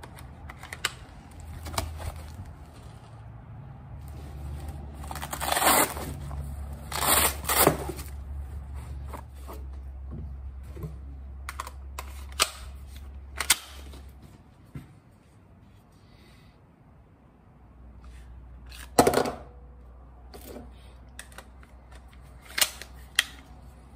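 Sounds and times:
pouch pulled open rasping: 4.4 - 6.3.

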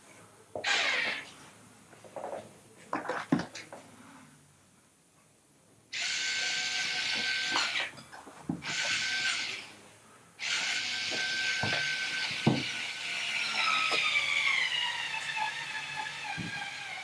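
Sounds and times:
power screwdriver motor whine: 6.0 - 7.9, 10.4 - 17.0.

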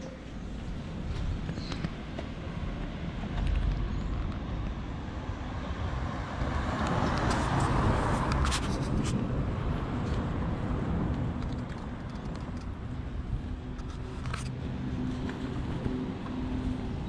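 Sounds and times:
low traffic rumble: 0.0 - 17.0
car passing: 4.9 - 12.0.

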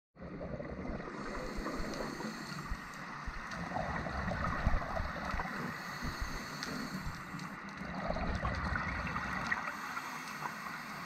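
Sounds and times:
underwater low rumble: 0.2 - 11.0.

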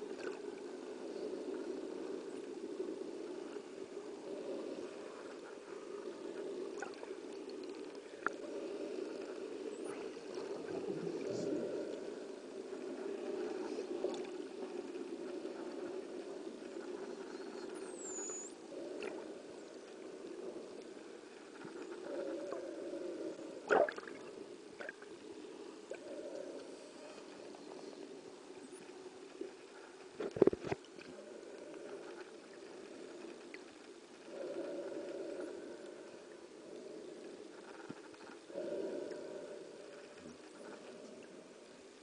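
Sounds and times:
scattered underwater clicks: 0.0 - 42.0
underwater rush of water: 21.5 - 26.8.

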